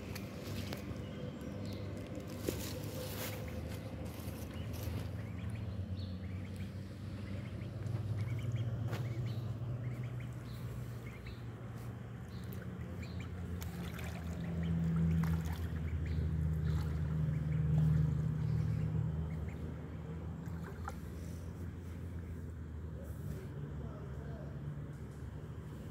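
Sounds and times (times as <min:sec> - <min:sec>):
low engine hum: 0:00.0 - 0:25.9
duckling splashing in puddle: 0:02.3 - 0:11.4, 0:12.3 - 0:19.6, 0:20.4 - 0:21.1.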